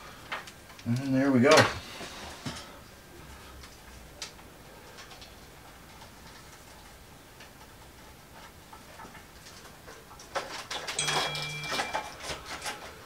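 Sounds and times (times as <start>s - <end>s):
hands rustling wiring and plastic: 3.5s - 13.0s.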